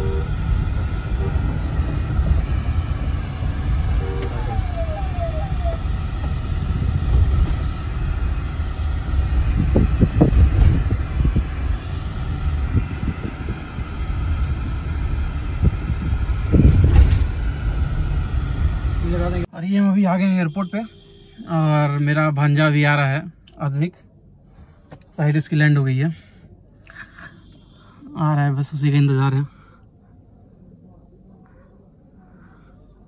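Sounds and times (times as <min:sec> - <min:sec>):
car cabin engine rumble: 0:00.0 - 0:19.5.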